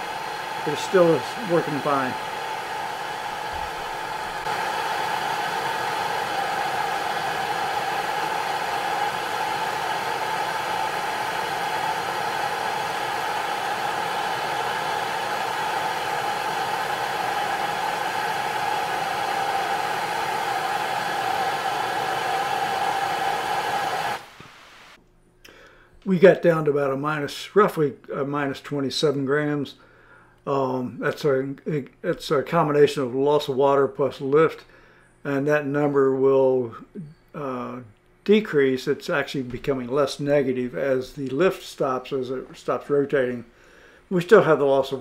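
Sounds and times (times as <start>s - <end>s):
steam jets hissing: 0.0s - 25.0s
gas torch flame: 3.1s - 25.0s.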